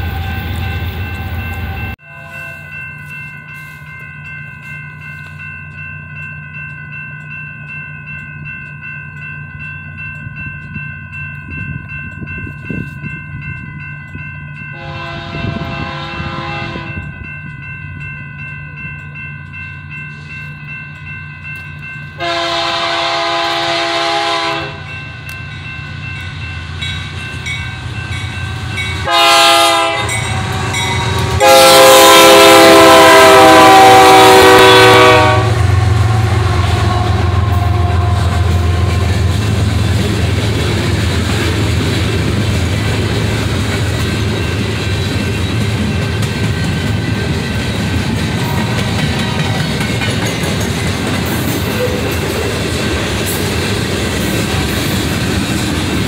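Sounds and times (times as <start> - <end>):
train air horn blasts: 1.6 - 2.7, 14.7 - 17.0, 22.2 - 25.0, 28.6 - 39.4.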